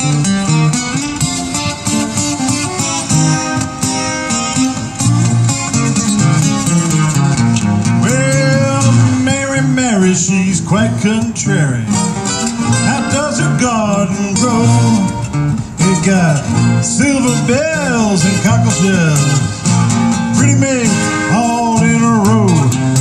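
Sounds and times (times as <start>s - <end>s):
strummed acoustic guitars: 0.0s - 23.0s
bending sliding lead notes: 11.9s - 22.9s.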